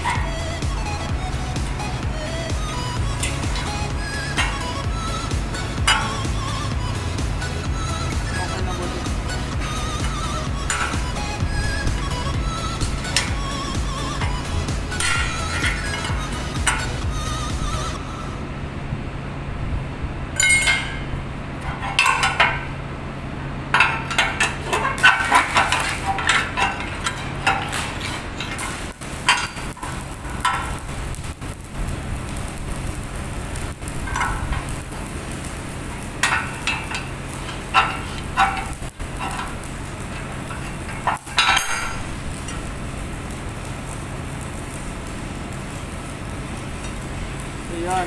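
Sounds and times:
steady low hum: 0.0s - 48.0s
metal clinks and knocks: 20.4s - 22.7s, 23.7s - 31.0s, 34.0s - 35.1s, 36.0s - 42.6s.

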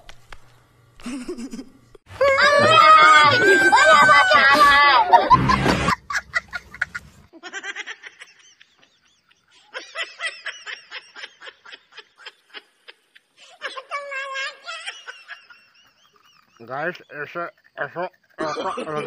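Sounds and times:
rapid laughter: 2.4s - 13.8s, 17.6s - 19.0s.

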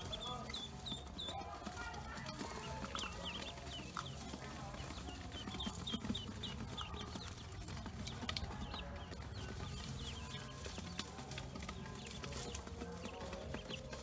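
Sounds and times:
ducklings peeping: 0.0s - 14.0s.

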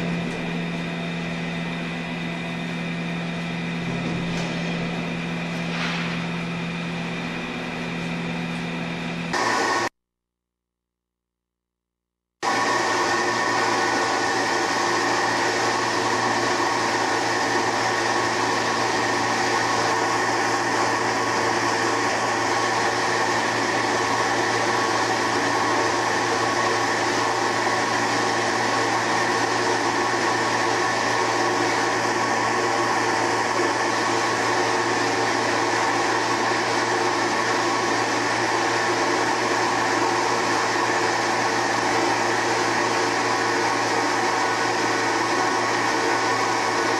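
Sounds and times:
soymilk machine humming: 0.0s - 9.9s, 12.4s - 46.9s.

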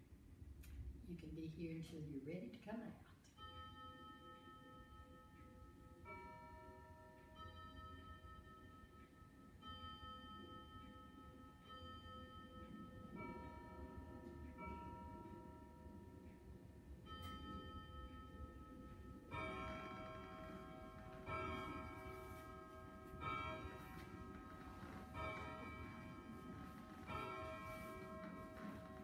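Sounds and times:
bell chimes ringing: 17.0s - 29.0s.

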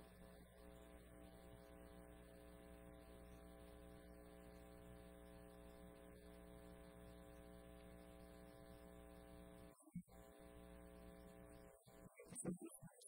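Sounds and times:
faint electrical mains hum: 0.0s - 13.0s.

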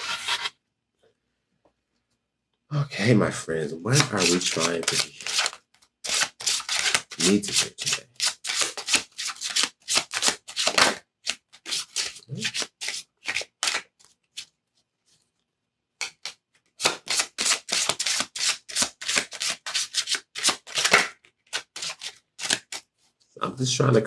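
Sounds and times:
cards being shuffled: 3.9s - 14.5s, 16.0s - 22.9s.

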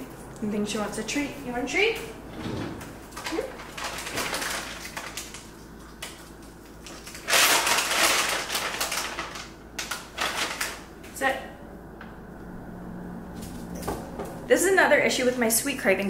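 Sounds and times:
packaging bag rustling and crackling: 3.0s - 10.9s.

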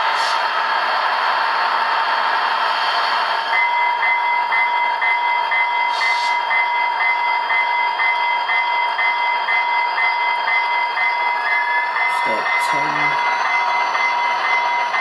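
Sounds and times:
model diesel locomotive whine: 0.0s - 15.0s
locomotive bell ringing: 3.5s - 15.0s.

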